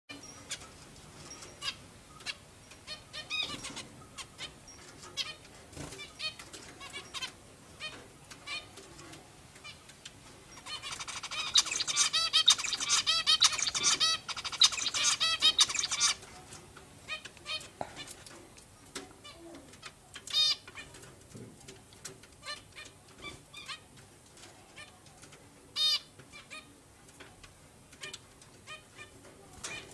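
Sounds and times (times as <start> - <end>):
finches chirping: 10.5 - 16.4.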